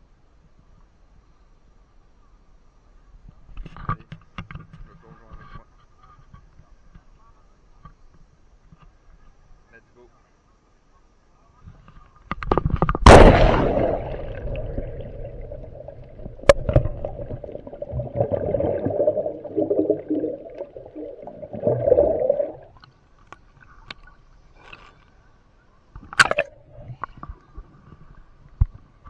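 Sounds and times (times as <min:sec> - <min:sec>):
splash into water: 0:13.0 - 0:22.8
muffled underwater bubbling: 0:13.1 - 0:22.8.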